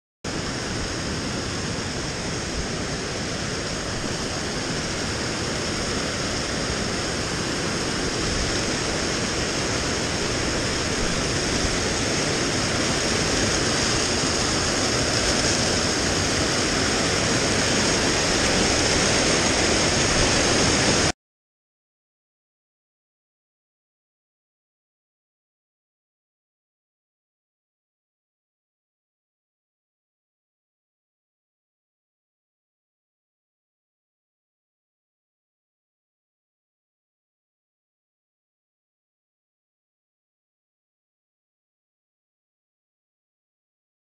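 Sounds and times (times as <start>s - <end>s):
stream rushing over rocks: 0.3s - 21.1s.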